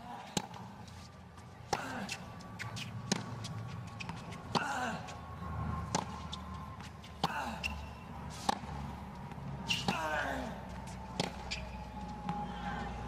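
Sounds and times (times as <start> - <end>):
tennis ball struck by racket: 1.7 - 4.8, 5.8 - 6.2, 8.3 - 8.7.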